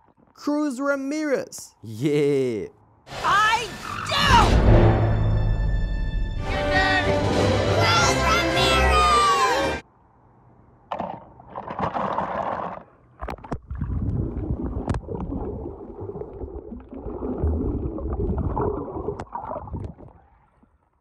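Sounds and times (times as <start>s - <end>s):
water sloshing and gurgling: 10.9s - 21.0s.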